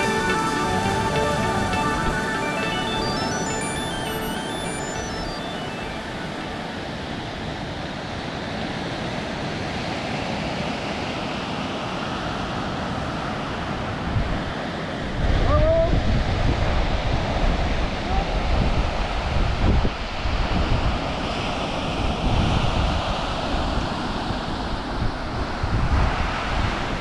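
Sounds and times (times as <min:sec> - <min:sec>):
ocean surf breaking: 0:00.0 - 0:08.4.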